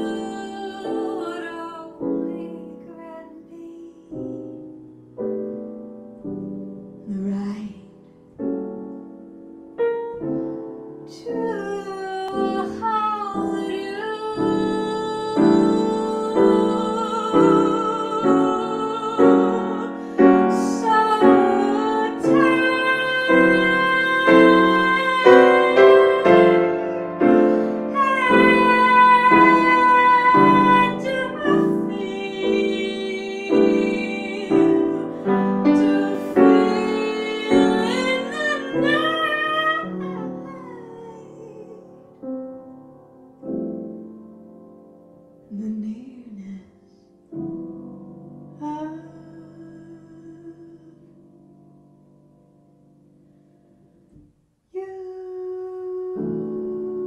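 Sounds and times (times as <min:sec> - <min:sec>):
woman singing: 0:00.0 - 0:04.6, 0:07.0 - 0:08.0, 0:11.0 - 0:42.3, 0:45.5 - 0:47.4, 0:48.5 - 0:51.4, 0:54.7 - 0:57.0
grand piano chords: 0:00.0 - 0:54.2.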